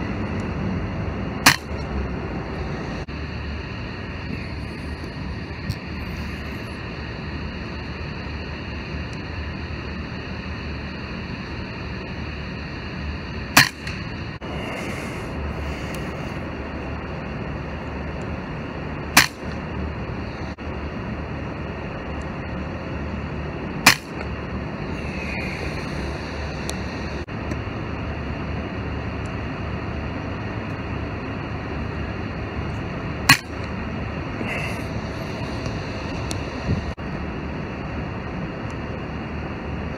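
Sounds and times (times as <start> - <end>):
background hum: 0.0 - 39.9
air rifle shots: 1.4 - 1.8, 13.5 - 14.0, 19.1 - 19.6, 23.8 - 24.3, 33.3 - 33.7.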